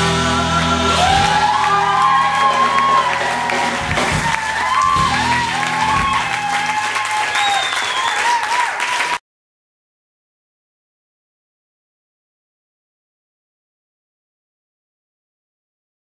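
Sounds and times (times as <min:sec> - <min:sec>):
live band final chord: 0:00.0 - 0:07.2
audience applauding and cheering: 0:00.0 - 0:09.2.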